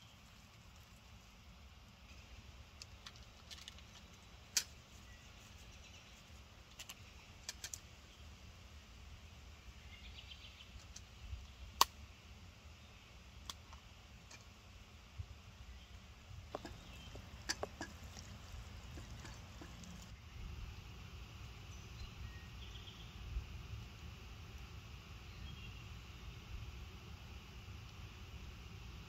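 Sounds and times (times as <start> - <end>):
fire clicks and pops: 2.0 - 5.1, 6.6 - 7.9, 10.7 - 12.0, 16.4 - 20.2.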